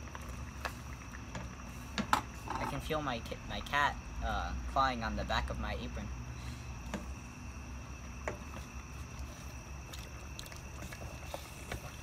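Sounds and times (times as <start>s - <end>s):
liquid sloshing in a pot: 0.0s - 2.9s, 6.7s - 12.0s
crickets chirping: 0.0s - 12.0s.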